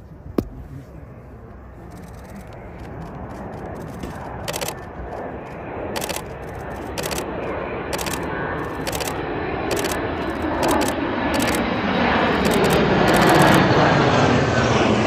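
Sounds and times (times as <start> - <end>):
jet aircraft rushing: 0.1 - 15.0
short clicks: 4.4 - 4.8, 6.0 - 7.3, 7.9 - 11.6.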